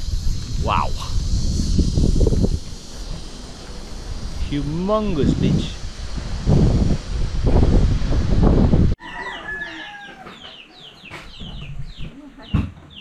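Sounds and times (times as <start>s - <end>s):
wind buffeting microphone: 0.0s - 9.0s
rooster crowing: 9.0s - 10.6s.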